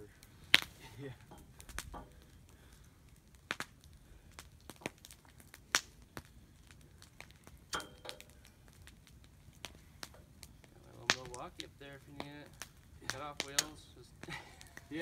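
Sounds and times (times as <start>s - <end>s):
hoof trimming snaps and clicks: 12.2s - 14.9s.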